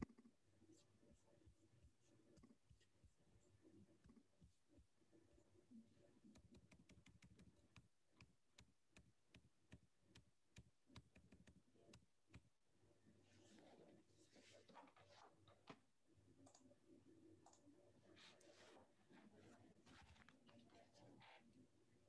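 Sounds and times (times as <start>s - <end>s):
faint computer mouse clicks: 16.4s - 16.7s.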